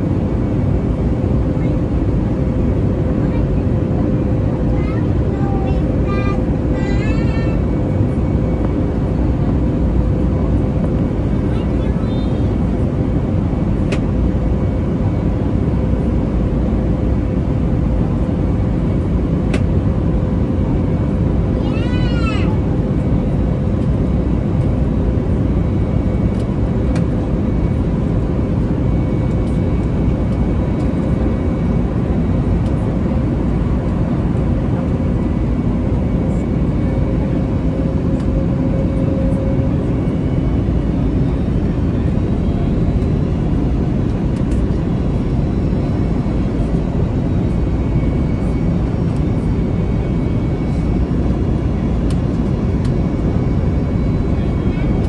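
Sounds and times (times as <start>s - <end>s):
airliner cabin engine rumble: 0.0s - 55.0s.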